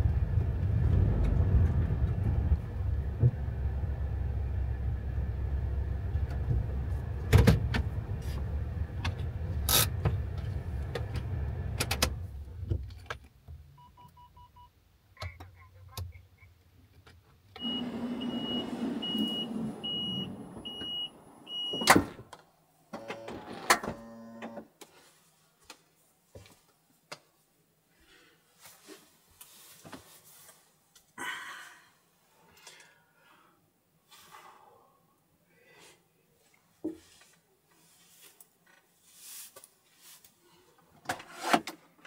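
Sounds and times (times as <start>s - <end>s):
knocks and rustling inside van: 0.0s - 4.6s, 5.6s - 13.6s.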